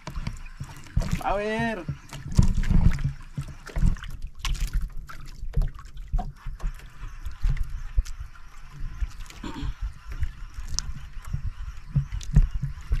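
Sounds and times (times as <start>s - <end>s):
water lapping against boat hull: 0.0s - 13.0s.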